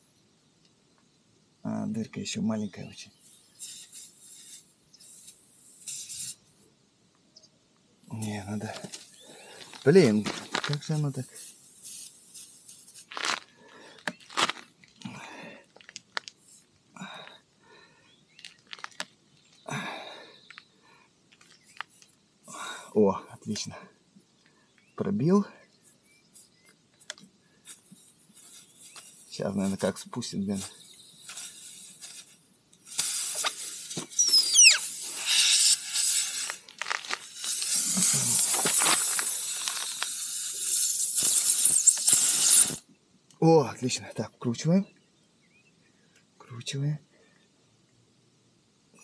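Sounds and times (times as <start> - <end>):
air hissing from tyre: 3.1 - 6.6, 10.9 - 13.4, 27.6 - 29.8, 30.6 - 42.9
rubber crunching and scraping: 8.6 - 11.3, 12.7 - 16.8, 18.3 - 19.6, 36.2 - 40.1
short squeal falling in pitch: 34.1 - 35.8.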